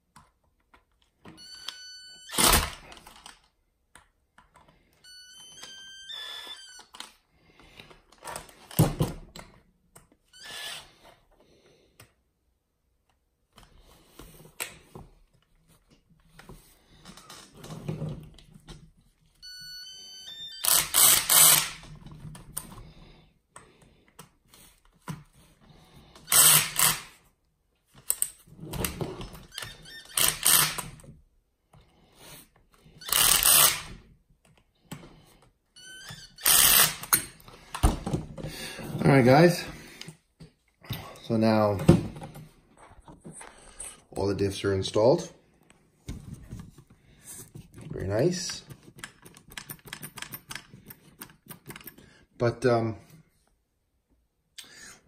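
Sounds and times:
electric screwdriver running: 20.6s - 21.8s, 26.3s - 27.1s, 33.0s - 33.9s, 36.4s - 37.1s
parts and tools being handled: 20.6s - 44.3s, 45.7s - 52.3s.

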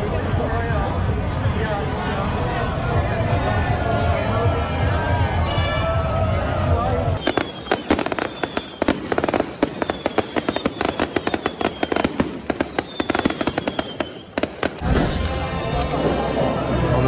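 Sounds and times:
faint falling whistles: 7.2s - 14.5s
fireworks crackling bangs: 7.2s - 16.0s.

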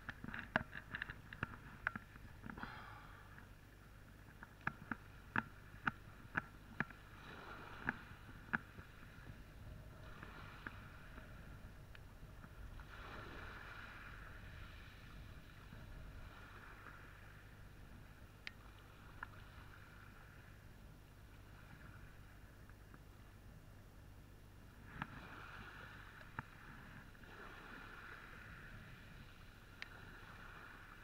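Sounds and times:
waves lapping on pebble beach: 4.6s - 11.7s, 12.4s - 20.6s, 24.8s - 31.0s.

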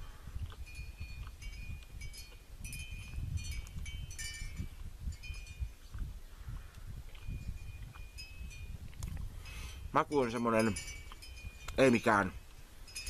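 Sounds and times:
wind rumble on microphone: 0.0s - 13.0s
wind chime tinkling: 9.5s - 12.3s.

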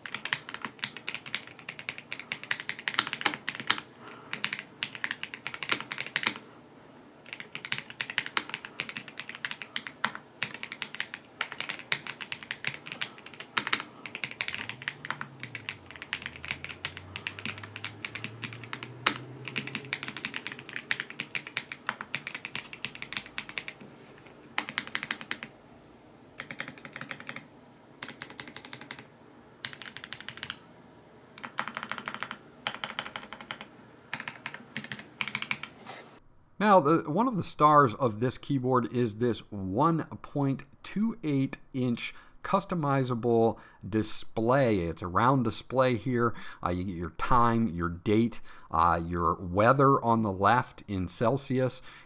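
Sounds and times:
mechanical keyboard typing: 0.0s - 6.4s, 7.2s - 23.8s, 24.6s - 25.5s, 26.4s - 30.6s, 31.4s - 35.8s.

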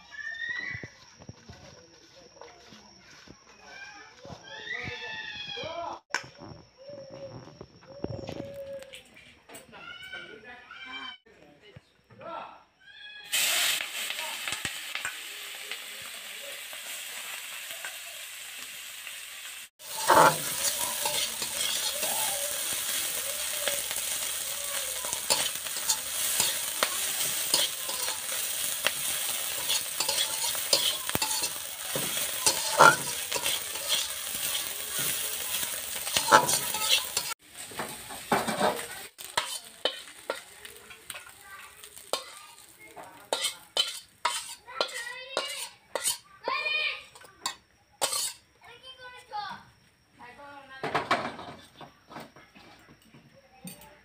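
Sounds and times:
fish sizzling in hot oil: 13.3s - 46.2s, 47.4s - 48.4s
metal spatula scraping pan: 19.8s - 42.4s, 43.2s - 46.2s, 47.1s - 48.4s.

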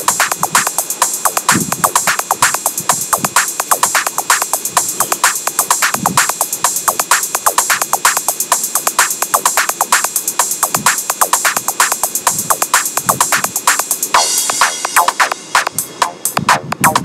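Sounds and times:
fast electronic drum beat: 0.0s - 17.0s.

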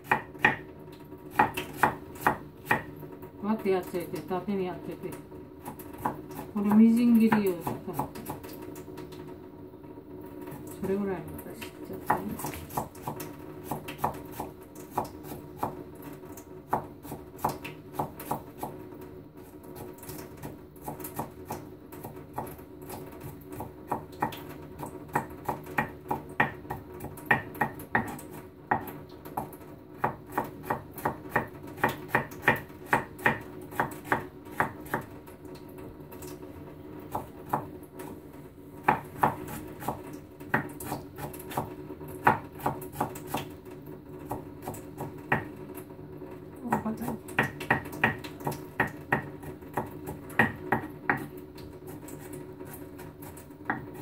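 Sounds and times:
knife chopping on cutting board: 0.0s - 0.7s, 1.3s - 2.9s, 12.0s - 15.8s, 16.7s - 18.8s, 25.1s - 35.1s, 38.8s - 43.5s, 46.7s - 51.3s, 53.3s - 54.0s.

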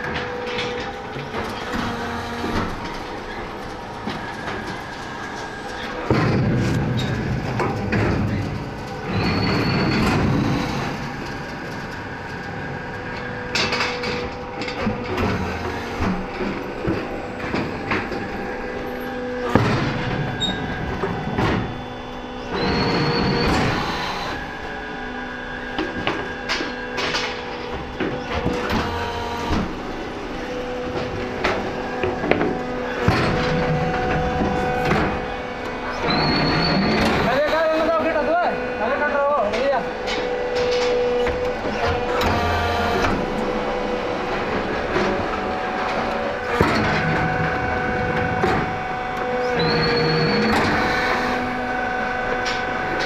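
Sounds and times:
hydraulic press humming and surging: 0.0s - 53.0s
metallic clanks of machinery: 39.4s - 43.6s.

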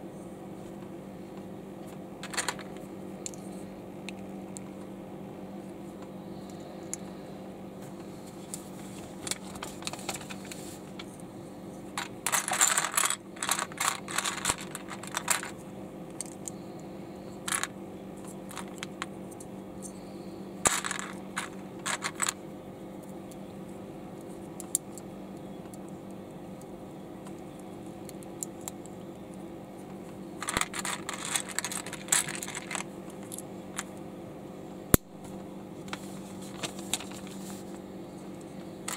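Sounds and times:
steady low hum: 0.0s - 38.9s
plastic bricks clicking and clattering: 2.2s - 2.7s, 12.0s - 15.5s, 20.7s - 22.4s, 30.4s - 33.4s.

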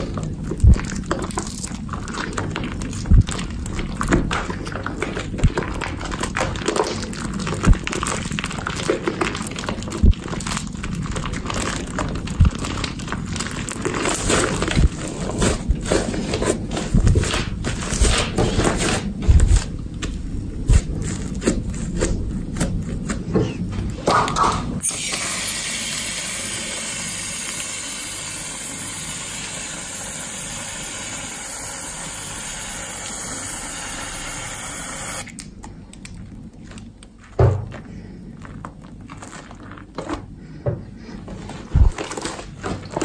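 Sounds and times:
foam bubbles crackling: 0.0s - 24.0s, 24.8s - 35.4s, 36.1s - 43.0s
wet slime squishing: 0.0s - 24.6s, 33.5s - 43.0s.

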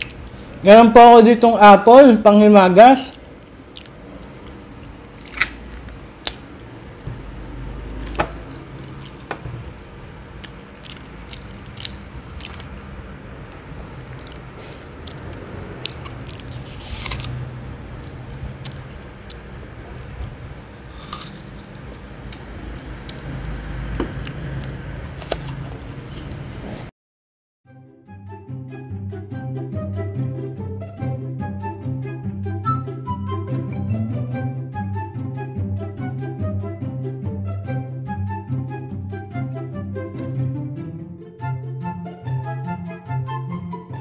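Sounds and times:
apple crunching: 0.0s - 0.2s, 3.1s - 6.7s, 7.4s - 9.5s, 10.4s - 12.8s, 14.0s - 17.5s, 18.6s - 23.4s, 24.0s - 25.8s
wet chewing: 3.1s - 4.6s, 7.4s - 9.4s, 10.4s - 12.8s, 14.0s - 17.4s, 18.6s - 23.4s, 24.1s - 25.5s.

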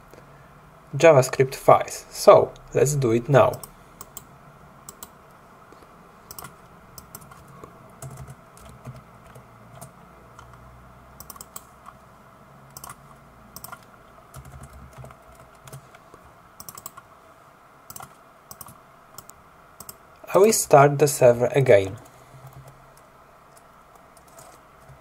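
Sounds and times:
computer keyboard typing: 3.4s - 4.3s, 4.9s - 5.2s, 6.3s - 10.6s, 11.2s - 12.0s, 12.7s - 13.0s, 13.6s - 15.9s, 16.6s - 17.0s, 17.9s - 20.0s, 21.9s - 25.0s.

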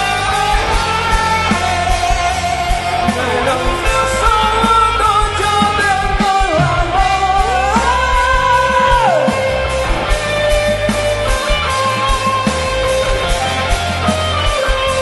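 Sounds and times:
person singing long notes: 0.0s - 9.6s
rock band playing: 0.0s - 15.0s.

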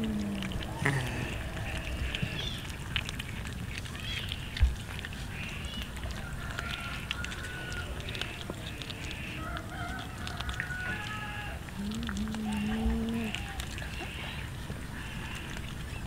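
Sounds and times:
cats chewing wetly: 0.0s - 16.0s
rooster crowing: 9.4s - 11.6s.

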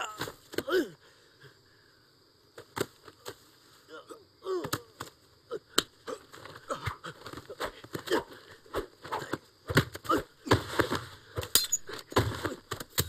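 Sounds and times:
grunts of effort: 0.0s - 1.1s, 3.9s - 12.7s.

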